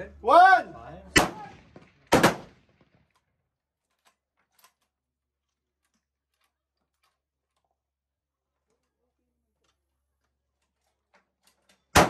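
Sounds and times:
gunshot: 1.2s - 2.9s.

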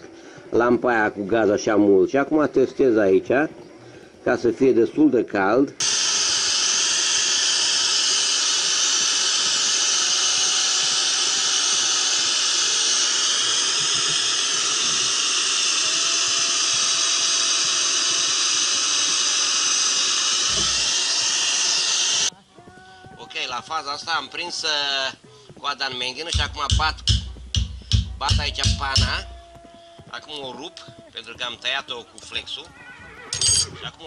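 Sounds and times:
gas torch hissing: 5.8s - 22.3s, 23.4s - 31.0s.

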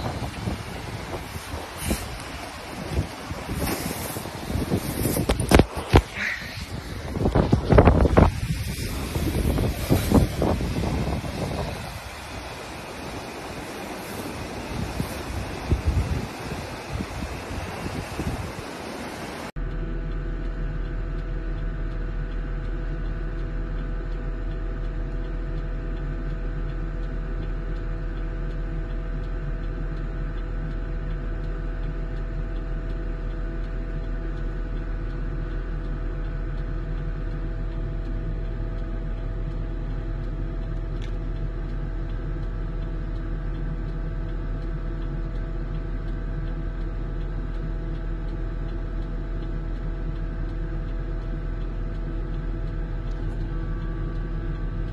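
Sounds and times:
snowplow engine and snow blower: 0.0s - 54.9s.

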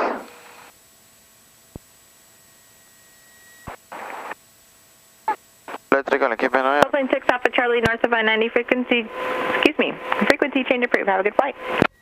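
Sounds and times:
radio line hiss: 3.6s - 4.4s, 5.2s - 11.9s
static burst: 3.7s - 4.4s.

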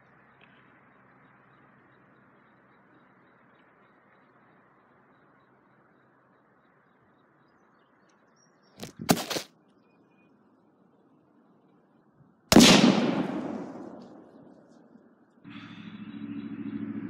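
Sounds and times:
camera tipping over clatter: 8.8s - 9.5s
rifle shot with echo: 12.5s - 14.7s.

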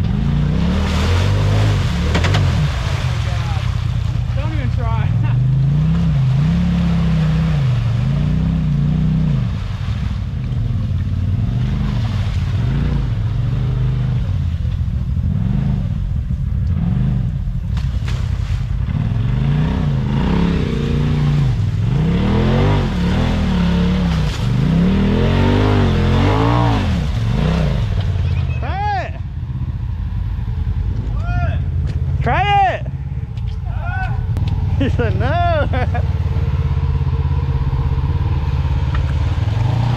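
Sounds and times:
engine revving hard: 0.0s - 3.8s, 18.9s - 28.1s.

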